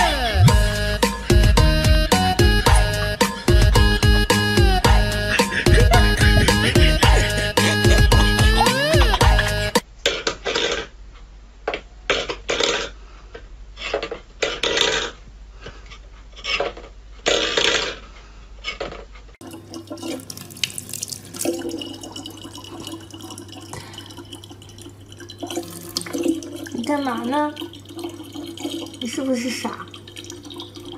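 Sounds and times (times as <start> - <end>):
tap water running into plastic bottle: 19.4 - 30.9.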